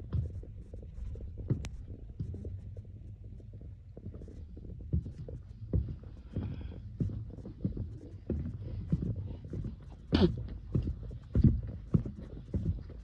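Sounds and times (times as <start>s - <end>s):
footsteps on concrete: 4.0s - 13.0s.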